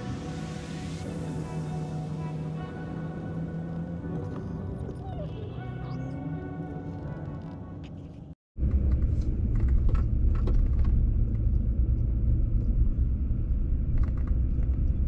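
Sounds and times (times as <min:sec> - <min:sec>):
music: 0:00.0 - 0:08.4
car road and engine rumble: 0:00.0 - 0:15.0.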